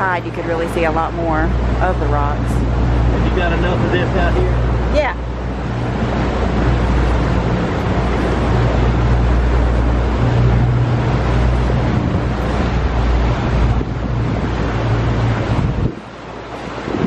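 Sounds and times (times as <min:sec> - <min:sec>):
boat engine running: 0:00.0 - 0:17.0
wind and water rushing past hull: 0:00.0 - 0:17.0.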